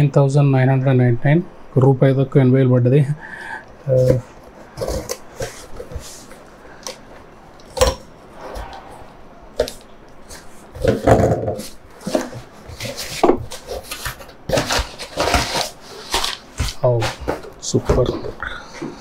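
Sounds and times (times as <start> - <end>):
packaging rubbing and scraping: 9.6 - 17.4
packaging rustling: 9.6 - 17.5.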